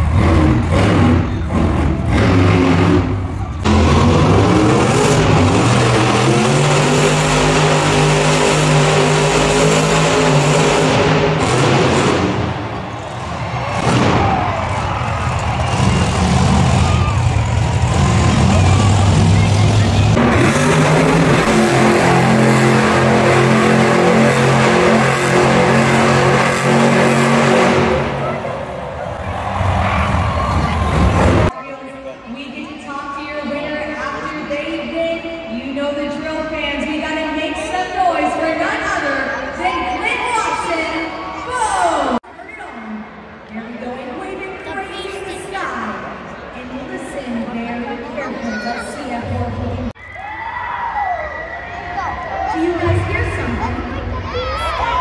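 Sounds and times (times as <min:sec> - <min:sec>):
monster truck engine running: 0:00.0 - 0:31.5
arena noise: 0:00.0 - 0:55.0.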